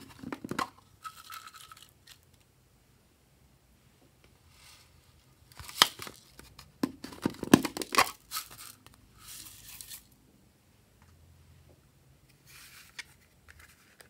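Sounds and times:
sequins rustling: 0.0 - 2.5, 8.0 - 10.2.

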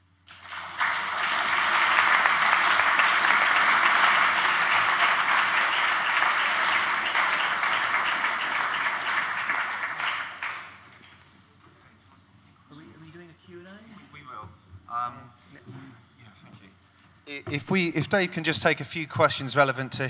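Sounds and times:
audience applauding: 0.3 - 11.2.

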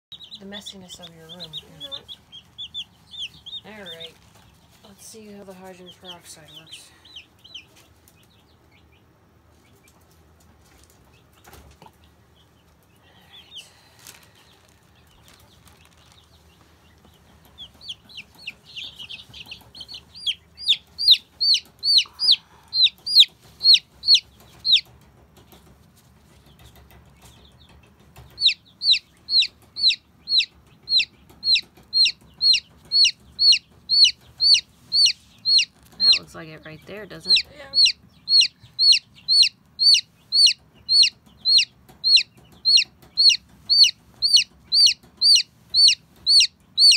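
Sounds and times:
baby chick peeping: 0.1 - 46.9.

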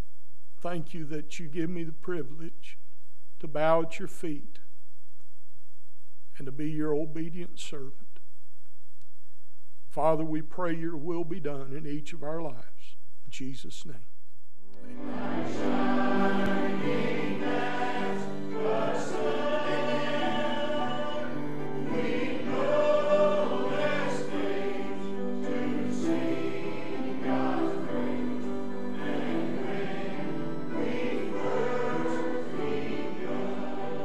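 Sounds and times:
choir singing a slow hymn: 14.9 - 34.0.

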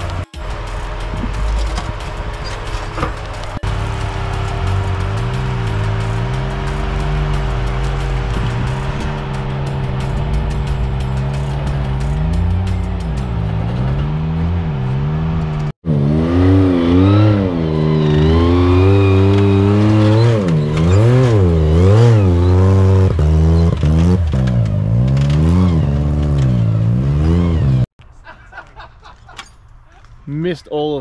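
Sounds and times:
engine revving: 0.0 - 27.9.

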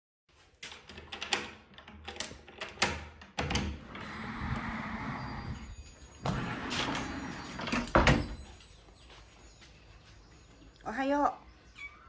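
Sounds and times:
key turning in door lock: 0.7 - 4.0
sliding glass door rolling open: 3.4 - 8.5.

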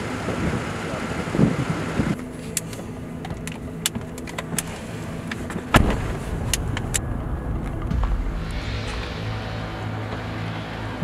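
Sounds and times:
small clicks and handling noises: 2.4 - 5.7
loud thump: 5.7 - 6.8, 7.5 - 10.4.

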